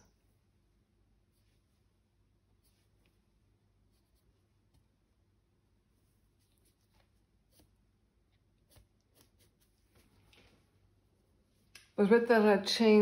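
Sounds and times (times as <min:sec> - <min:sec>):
brush scratching on canvas: 0:01.2 - 0:04.8, 0:05.9 - 0:07.9, 0:08.6 - 0:10.4.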